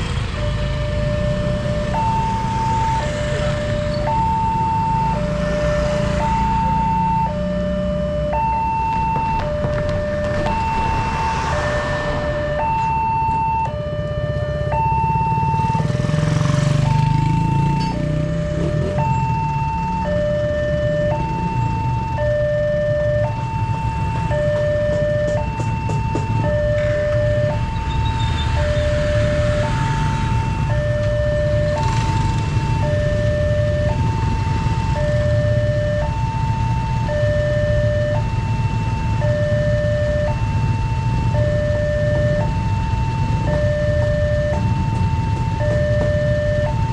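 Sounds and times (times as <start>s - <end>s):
two-tone level crossing alarm: 0.3s - 46.9s
motorcycle engines running: 12.2s - 46.9s
level-crossing two-tone alarm chime: 16.9s - 32.1s, 39.1s - 46.9s.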